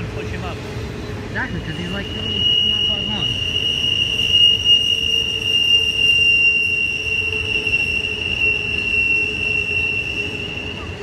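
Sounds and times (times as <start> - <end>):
wheel flanges squealing: 0.0 - 11.0
wheels rumbling on rail: 0.0 - 11.0.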